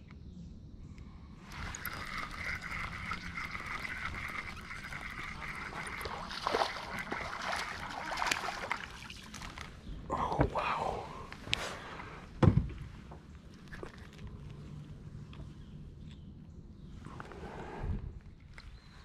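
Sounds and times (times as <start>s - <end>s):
water splashing and sloshing: 1.4s - 9.9s.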